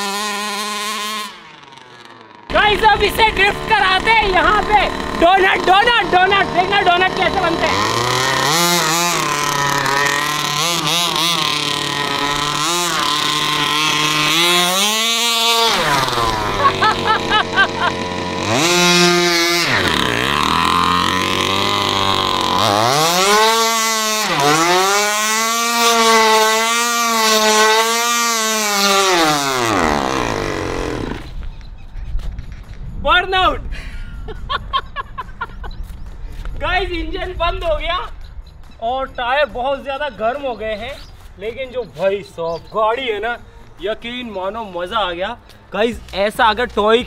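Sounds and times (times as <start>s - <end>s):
petrol engine revving: 0.0s - 31.8s.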